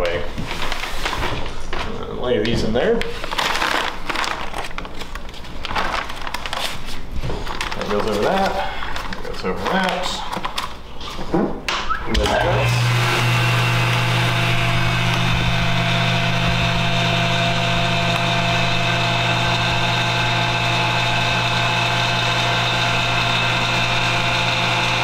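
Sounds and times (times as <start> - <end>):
vacuum pump humming: 12.0 - 25.0.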